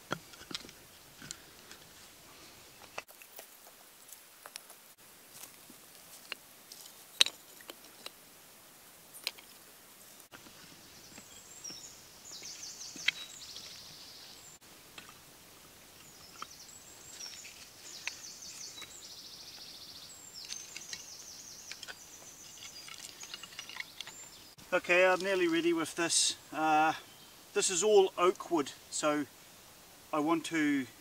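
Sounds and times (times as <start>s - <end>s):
small birds trilling: 10.3s - 14.6s, 15.8s - 29.2s.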